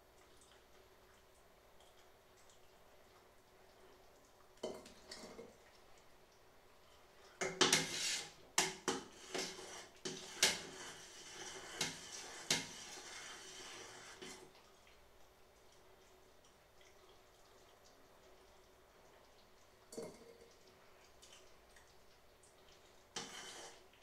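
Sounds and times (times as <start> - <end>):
utensil scraping a metal stockpot: 7.4 - 14.4, 23.2 - 23.8.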